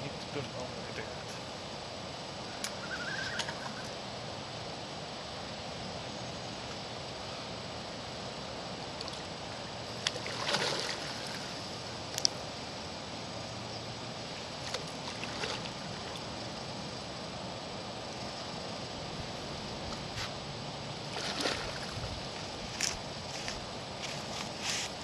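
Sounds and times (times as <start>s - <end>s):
background hiss: 0.0s - 25.0s
rippling water: 8.1s - 18.3s, 19.0s - 25.0s
fish splashing at surface: 10.1s - 11.5s.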